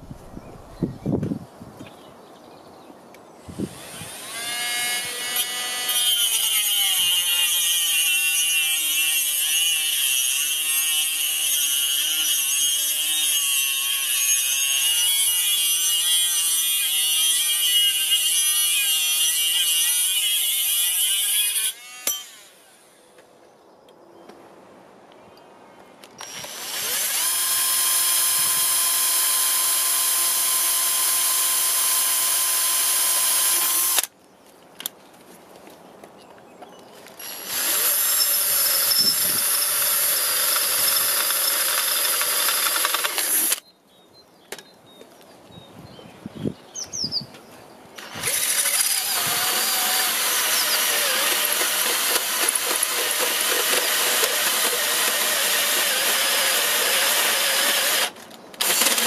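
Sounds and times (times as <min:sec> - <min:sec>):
electric drill whining: 0:03.5 - 0:16.0, 0:26.2 - 0:34.1, 0:37.2 - 0:43.6, 0:48.0 - 0:59.0
hole saw cutting steel plate: 0:03.7 - 0:22.6, 0:37.2 - 0:43.6, 0:48.0 - 0:59.0.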